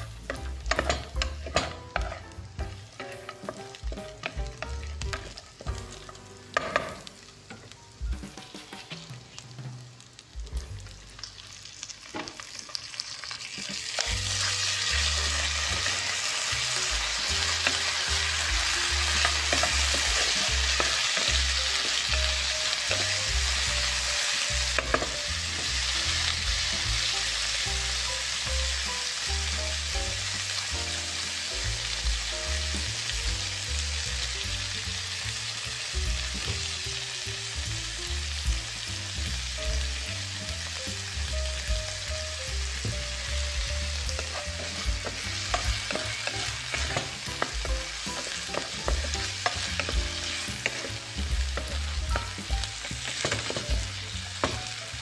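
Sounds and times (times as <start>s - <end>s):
food sizzling in a pan: 0.0s - 55.0s.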